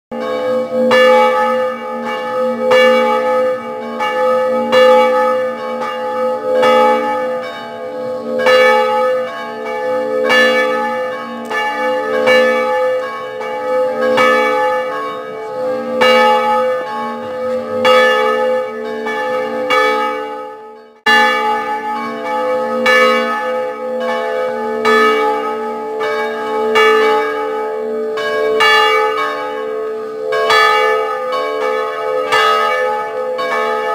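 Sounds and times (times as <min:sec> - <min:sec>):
church bells ringing: 0:00.1 - 0:33.9.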